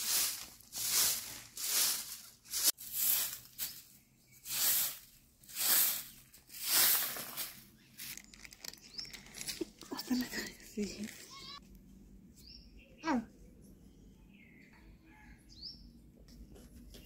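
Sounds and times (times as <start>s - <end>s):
broom sweeping dirt: 0.0s - 8.1s.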